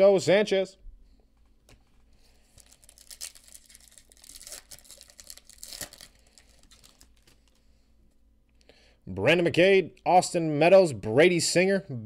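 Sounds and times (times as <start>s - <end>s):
foil wrapper crinkling: 2.3s - 7.7s.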